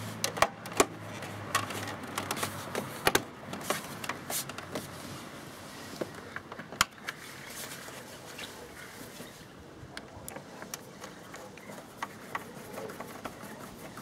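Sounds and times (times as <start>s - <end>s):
plastic and cable clicks: 0.2s - 4.8s.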